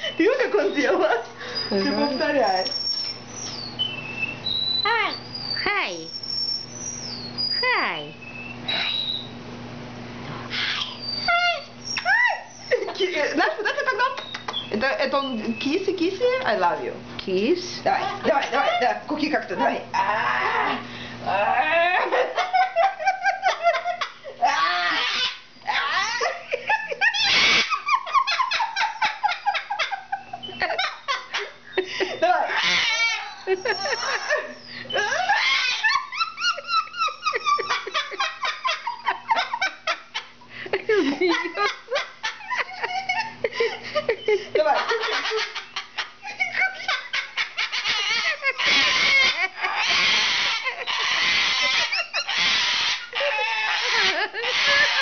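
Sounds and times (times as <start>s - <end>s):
cockatoo squawking: 0.2s - 9.3s, 10.5s - 13.3s, 24.4s - 26.4s, 27.0s - 29.6s, 32.2s - 39.7s, 44.7s - 55.0s
cockatoo screech: 1.6s - 7.7s, 8.4s - 9.3s, 10.5s - 12.7s, 24.5s - 26.2s, 27.2s - 27.7s, 32.5s - 35.9s, 47.8s - 55.0s
cockatoo clicks and chirps: 2.6s - 3.7s.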